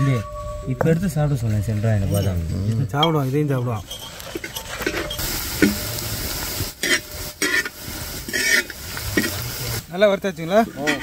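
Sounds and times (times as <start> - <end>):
ladle scraping a pan: 3.0 - 5.9, 6.8 - 9.4, 10.6 - 11.0
onions sizzling in a pan: 5.1 - 11.0.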